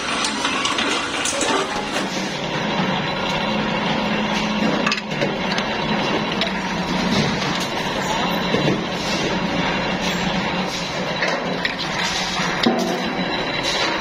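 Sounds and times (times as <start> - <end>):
metal scraping and rattling: 0.0 - 2.9
flanging machine humming: 0.0 - 14.0.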